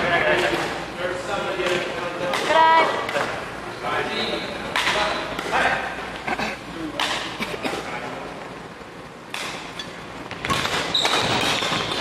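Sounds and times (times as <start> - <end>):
racket striking shuttlecock: 4.7 - 5.6, 7.0 - 7.4, 9.3 - 12.0
sneakers squeaking on court floor: 9.8 - 12.0.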